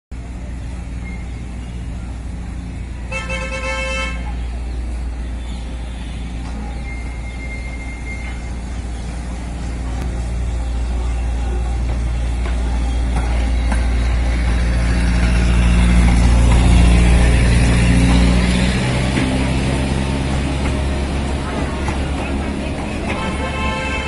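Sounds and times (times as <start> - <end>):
train rumble: 0.1 - 24.0
train horn toot: 3.1 - 4.4, 23.0 - 24.0.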